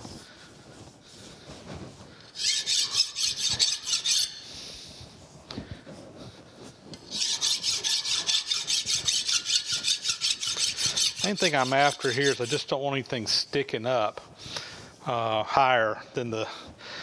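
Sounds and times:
file rasping across metal: 2.3 - 4.4, 6.9 - 12.8.

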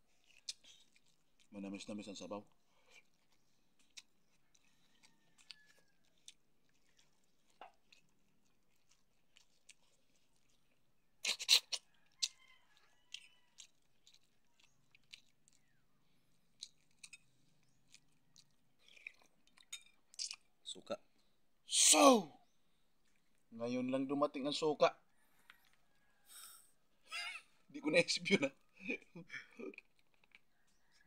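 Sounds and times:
chewing clicks: 0.0 - 20.6, 29.6 - 31.0
wet lip smacks: 11.2 - 12.4.

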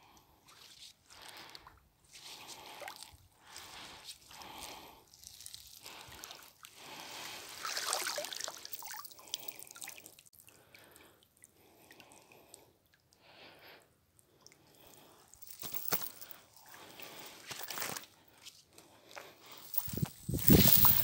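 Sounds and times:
water dripping off a net: 4.2 - 13.2.

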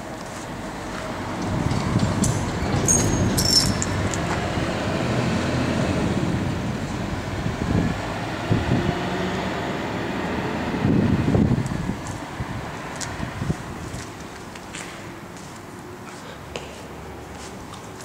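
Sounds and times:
passing vehicle rumble: 0.0 - 14.3
high squeals: 2.4 - 4.0.

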